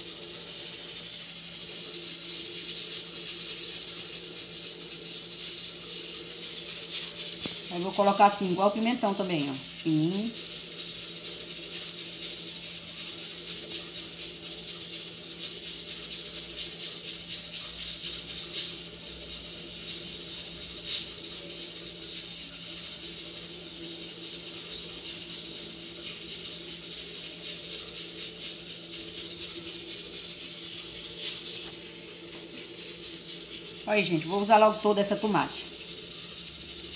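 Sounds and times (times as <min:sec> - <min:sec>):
low hum with hiss: 0:00.0 - 0:36.9.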